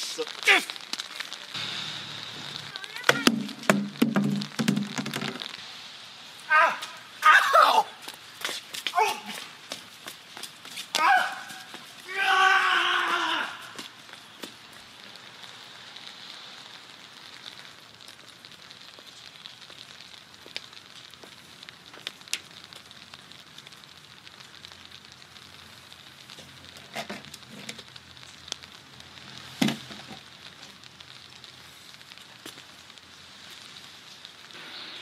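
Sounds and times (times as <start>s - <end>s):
light rain on wet pavement: 0.0s - 35.0s
dull knocks: 3.2s - 5.4s.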